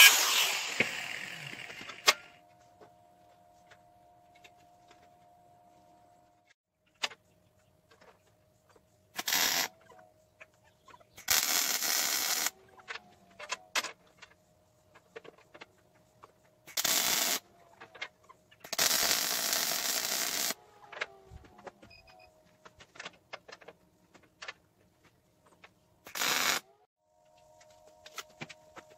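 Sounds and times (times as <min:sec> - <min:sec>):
electric arc buzzing: 0:00.0 - 0:02.2, 0:09.2 - 0:09.7, 0:11.3 - 0:12.5, 0:16.7 - 0:17.4, 0:18.7 - 0:20.6, 0:26.1 - 0:26.6
small clicks and knocks: 0:20.8 - 0:25.8.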